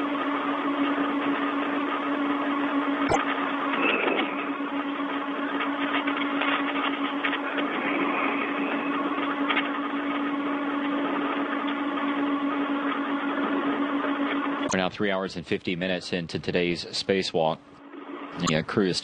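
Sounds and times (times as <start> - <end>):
constant low hum: 0.0 - 19.0
radio channel hiss: 14.6 - 19.0.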